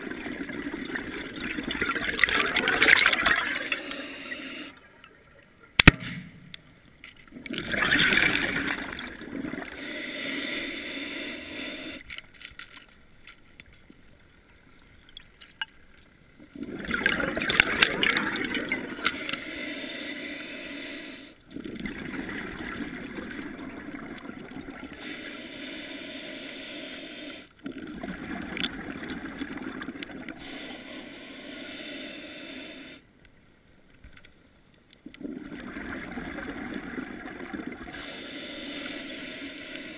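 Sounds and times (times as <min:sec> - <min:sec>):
underwater water rushing: 0:00.0 - 0:04.8, 0:07.4 - 0:12.0, 0:16.4 - 0:33.0, 0:35.2 - 0:39.9.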